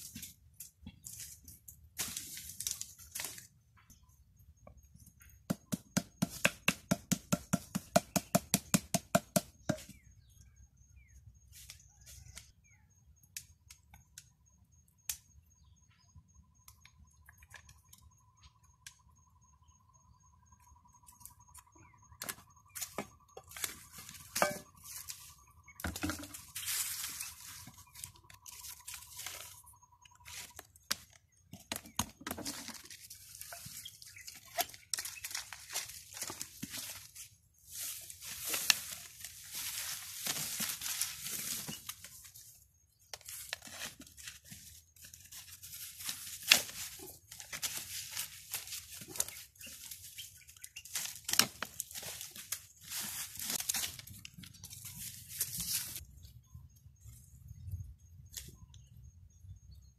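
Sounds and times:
faint steady whistling tone: 9.7s - 31.5s, 54.8s - 59.9s.

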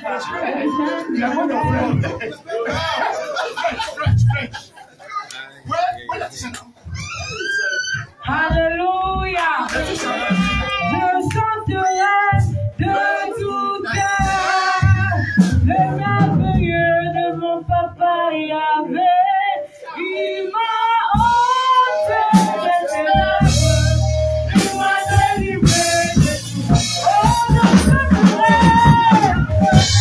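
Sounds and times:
women singing into microphones: 8.2s - 30.0s.

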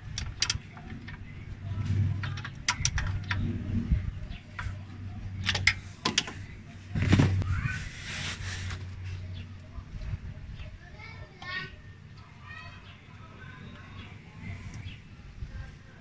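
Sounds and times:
low steady hum: 0.0s - 16.0s
hand tool clicking on metal bolt: 0.1s - 1.2s
metal scrape: 7.1s - 9.0s.

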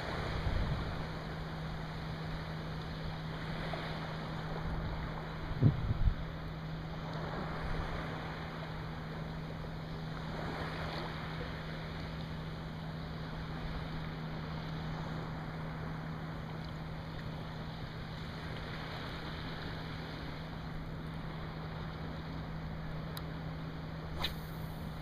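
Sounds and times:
low hum: 0.0s - 25.0s
wind: 0.0s - 25.0s
water lapping: 6.6s - 23.0s.

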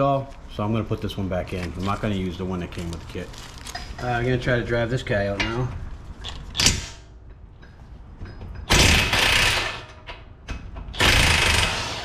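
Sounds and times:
rapid mechanical hammering: 11.0s - 12.0s.

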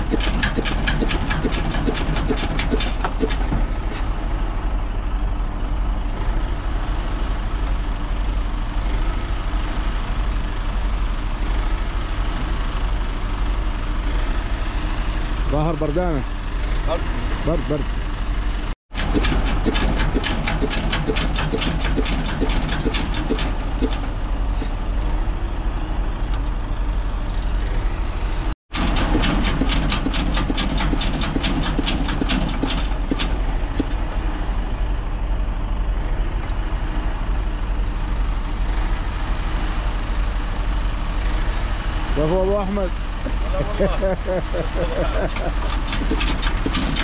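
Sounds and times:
diesel engine knocking on start: 0.0s - 4.0s, 18.9s - 24.8s, 28.7s - 34.1s, 42.2s - 47.0s
low engine hum: 0.0s - 47.0s.

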